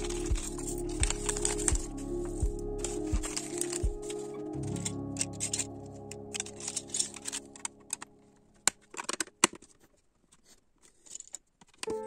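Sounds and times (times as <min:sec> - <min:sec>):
background music: 0:00.0 - 0:08.8.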